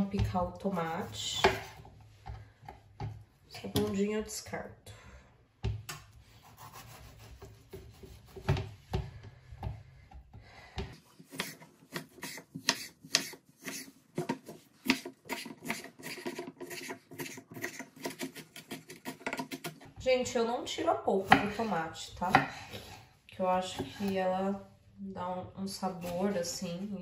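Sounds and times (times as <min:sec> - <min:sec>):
knife cutting on wooden board: 0:11.2 - 0:19.8
knife chopping quickly: 0:11.3 - 0:19.8.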